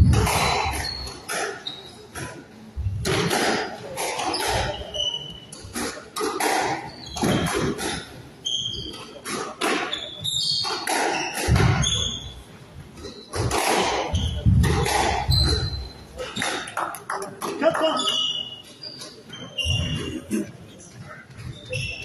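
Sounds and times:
squash ball strikes: 0:00.0 - 0:01.6, 0:02.2 - 0:04.8, 0:05.7 - 0:08.2, 0:09.2 - 0:10.0, 0:10.6 - 0:12.3, 0:13.3 - 0:17.6
shoes squeaking on floor: 0:00.0 - 0:22.0.

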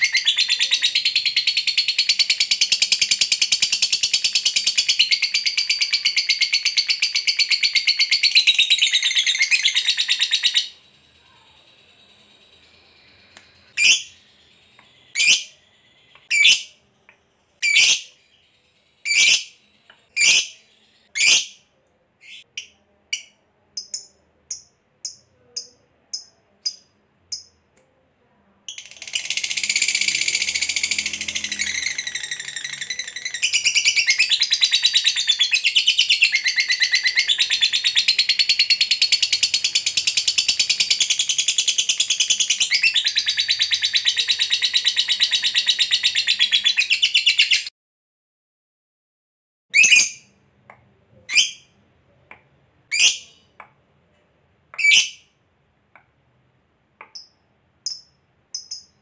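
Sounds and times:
bird rapid chatter trill: 0:00.0 - 0:15.6, 0:28.7 - 0:47.7.

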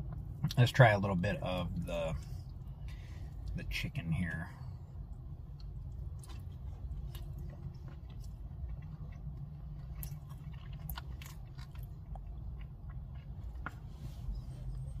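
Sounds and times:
low hum: 0:00.0 - 0:15.0
man chewing with crunches: 0:04.7 - 0:15.0.

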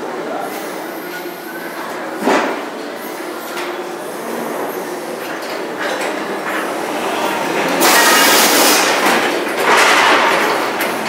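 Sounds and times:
forklift engine drone: 0:06.3 - 0:11.0.

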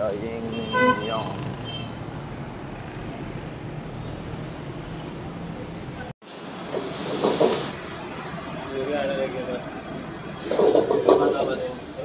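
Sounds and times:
street traffic hum: 0:00.0 - 0:12.0
food sizzling in woks: 0:06.2 - 0:08.8, 0:09.8 - 0:12.0
ladle clattering in a wok: 0:10.4 - 0:11.8.

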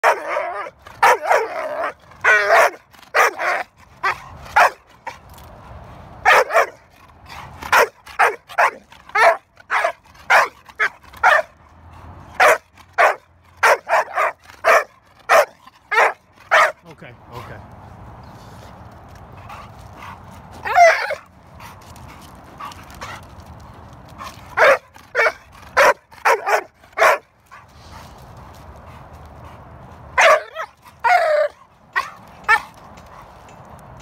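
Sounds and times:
dog barking: 0:00.0 - 0:04.8, 0:06.2 - 0:06.8, 0:07.7 - 0:11.5, 0:12.4 - 0:16.8, 0:24.6 - 0:27.2, 0:30.2 - 0:32.6
dog yipping: 0:07.7 - 0:11.5, 0:20.6 - 0:21.2.

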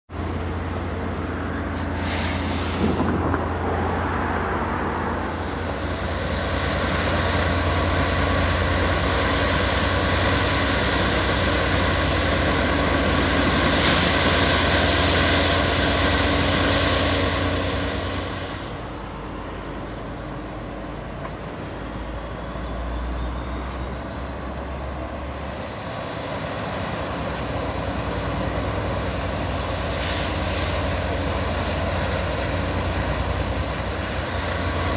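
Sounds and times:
plow scraping dirt: 0:00.1 - 0:21.7, 0:22.3 - 0:34.9
diesel engines running: 0:00.1 - 0:34.9.

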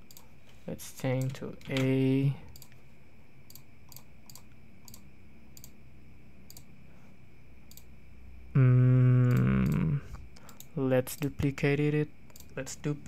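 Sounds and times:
computer mouse clicks: 0:00.0 - 0:00.3, 0:02.5 - 0:02.8, 0:03.5 - 0:05.8, 0:06.5 - 0:06.7, 0:07.7 - 0:07.9, 0:09.2 - 0:11.3, 0:12.3 - 0:12.6
man humming a long note: 0:08.5 - 0:10.0.

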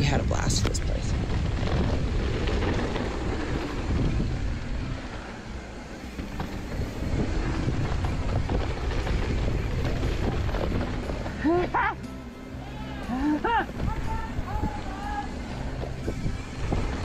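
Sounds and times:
wind on microphone: 0:00.0 - 0:11.4, 0:15.7 - 0:17.0
tyres rolling over dirt: 0:00.0 - 0:17.0
bike clicks and knocks: 0:06.1 - 0:11.9.

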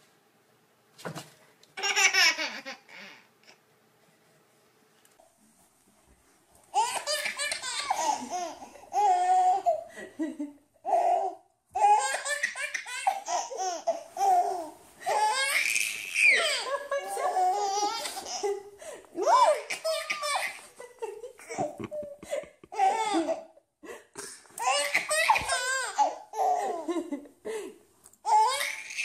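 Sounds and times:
baby laughing: 0:01.8 - 0:03.6, 0:06.7 - 0:09.9, 0:10.8 - 0:23.6, 0:24.6 - 0:27.0, 0:28.3 - 0:29.0.

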